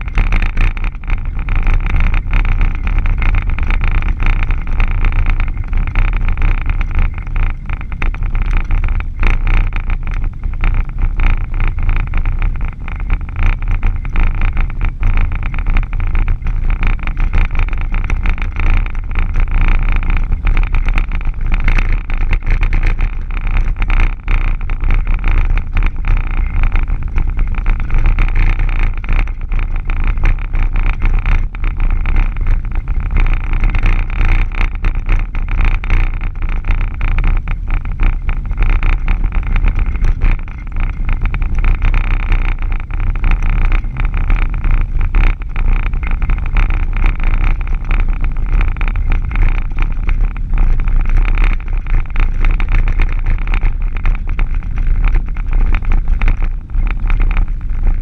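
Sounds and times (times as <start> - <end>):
vehicle engine and tyre noise: 0.0 - 58.0.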